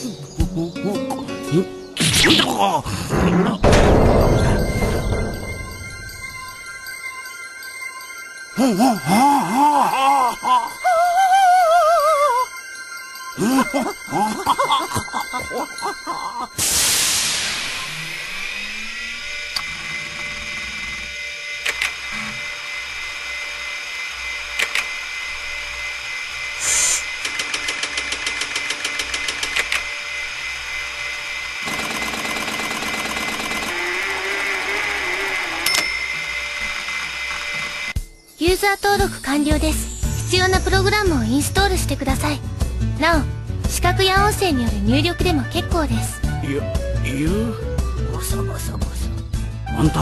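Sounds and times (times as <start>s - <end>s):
short music: 3.7s - 7.0s
wavering electronic tone: 3.9s - 16.6s, 17.5s - 27.0s
electronic hum with high whine: 17.3s - 27.2s.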